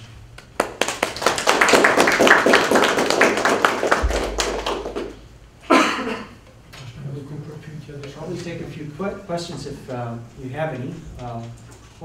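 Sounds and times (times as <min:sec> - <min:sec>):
audience applauding: 0:00.4 - 0:05.2.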